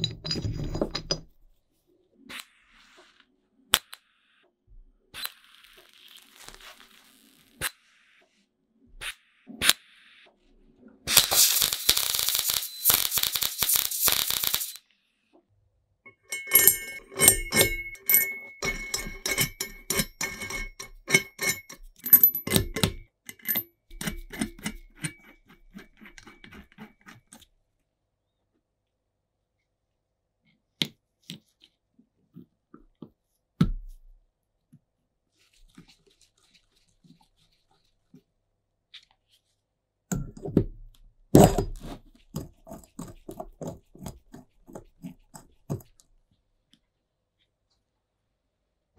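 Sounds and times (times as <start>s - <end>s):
metal parts clinking and rattling: 0.0s - 1.3s, 16.1s - 26.7s.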